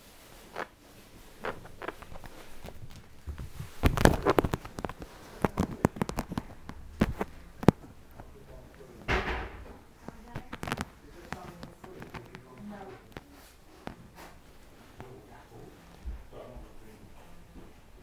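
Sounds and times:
kitten scuffling on carpet: 0:00.0 - 0:07.4
microphone handling noise: 0:00.4 - 0:08.3.

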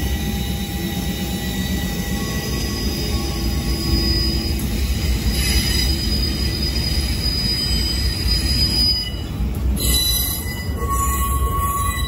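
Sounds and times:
train wheels rumbling on rails: 0:00.0 - 0:12.0
high wheel squealing: 0:01.7 - 0:12.0.

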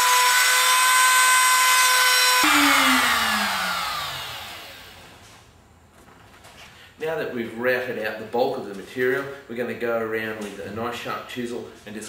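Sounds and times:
trim router motor whining: 0:00.0 - 0:05.2.

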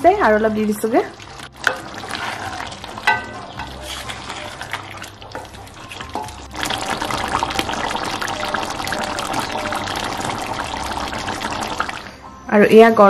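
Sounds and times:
curry bubbling and sizzling: 0:00.0 - 0:12.3
wooden spatula scraping: 0:00.4 - 0:07.7.

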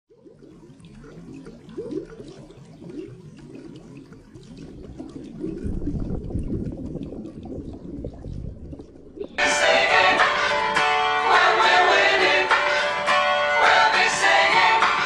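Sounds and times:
underwater bubbling and gurgling: 0:00.1 - 0:09.4
low rumble: 0:04.7 - 0:09.4.

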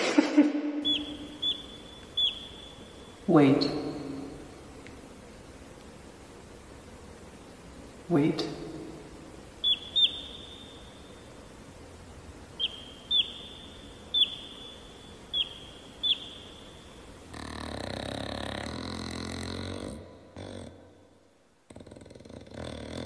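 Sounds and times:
chick peeping: 0:00.8 - 0:03.1, 0:09.6 - 0:10.9, 0:12.6 - 0:16.7
low groan: 0:17.3 - 0:20.9.

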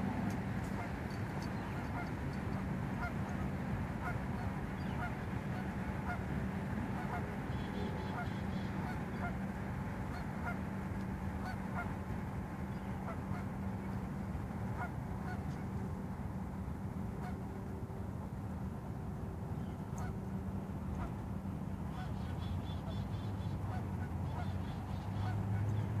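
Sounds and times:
geese honking: 0:00.0 - 0:06.3, 0:06.9 - 0:09.5, 0:10.1 - 0:12.0, 0:12.7 - 0:13.6, 0:14.7 - 0:15.7, 0:19.9 - 0:20.2, 0:21.9 - 0:26.0.

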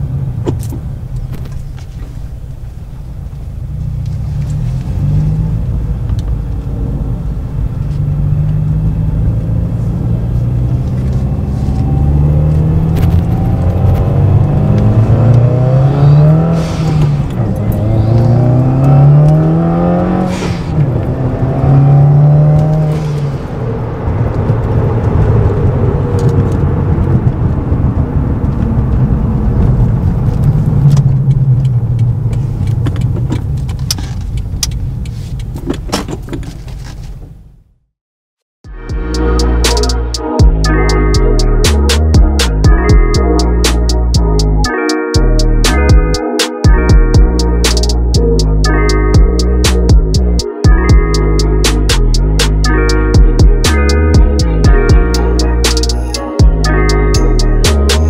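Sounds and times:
car engine revving: 0:03.4 - 0:32.3.

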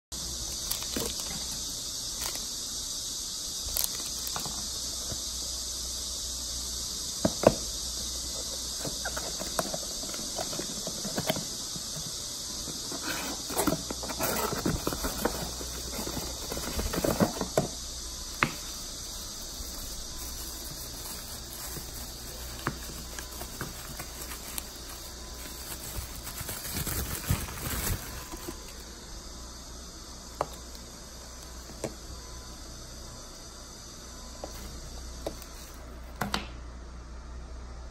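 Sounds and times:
steady high-pitched hiss: 0:00.1 - 0:37.9
wrapping rustling: 0:19.1 - 0:28.7.

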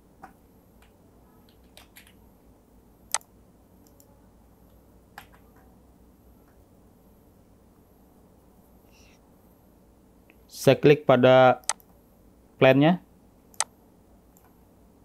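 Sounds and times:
faint low hum: 0:00.0 - 0:15.0
computer mouse clicking: 0:00.2 - 0:02.2, 0:11.6 - 0:11.9, 0:14.3 - 0:14.6.

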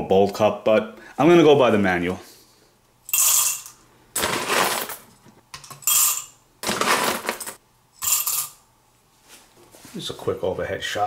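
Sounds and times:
coffee beans clattering: 0:03.1 - 0:08.6.

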